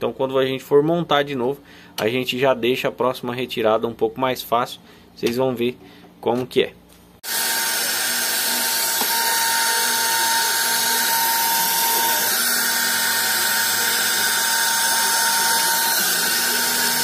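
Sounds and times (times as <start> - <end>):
hair dryer running: 7.2 - 17.0.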